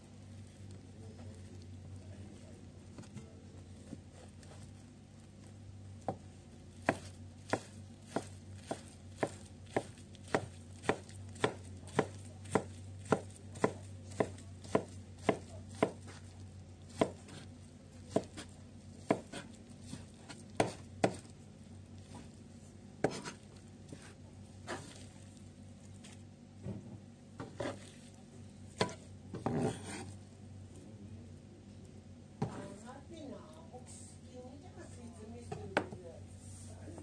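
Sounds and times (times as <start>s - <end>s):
faint low hum: 0.0s - 37.0s
knife chopping on plastic board: 6.8s - 16.2s, 16.9s - 17.5s, 18.1s - 21.3s, 23.0s - 24.1s, 28.8s - 30.1s.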